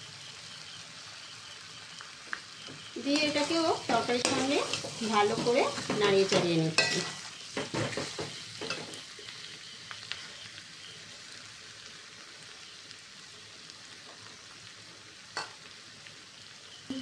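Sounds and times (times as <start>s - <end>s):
potatoes sizzling in hot oil: 0.0s - 17.0s
metal spatula scraping pan: 3.2s - 9.0s.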